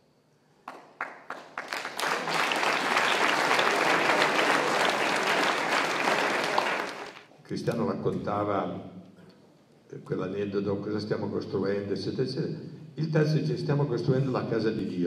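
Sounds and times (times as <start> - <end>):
audience applause: 0.7 - 7.3.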